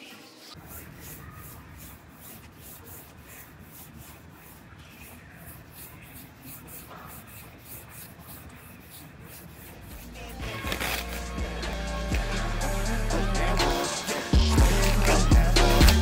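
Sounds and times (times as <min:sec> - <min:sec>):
sandpaper rubbing on car panel: 0:00.6 - 0:11.7.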